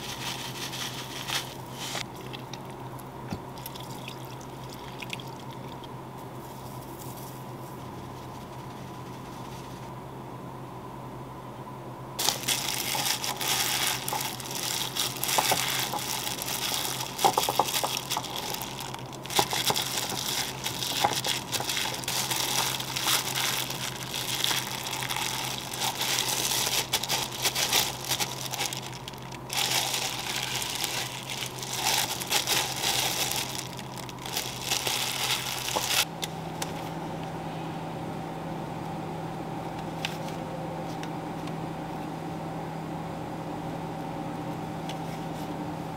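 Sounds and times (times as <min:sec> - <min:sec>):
plastic glove crinkling: 0:00.0 - 0:02.6, 0:12.2 - 0:36.1
steady low hum: 0:00.0 - 0:45.9
mixture squishing: 0:12.2 - 0:36.1.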